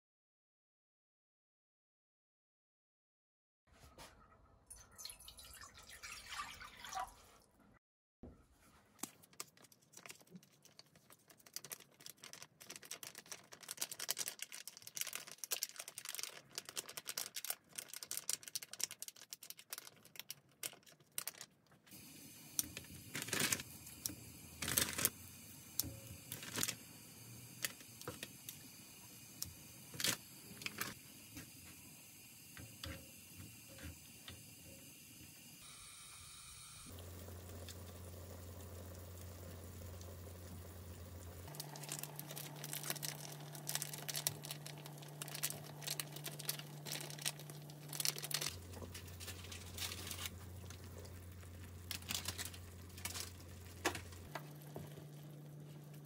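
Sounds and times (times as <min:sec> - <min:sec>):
liquid pouring into a wok: 0:04.7 - 0:07.3
small crackles and clicks: 0:09.0 - 0:21.9, 0:41.4 - 0:56.0
soup simmering: 0:36.9 - 0:56.0.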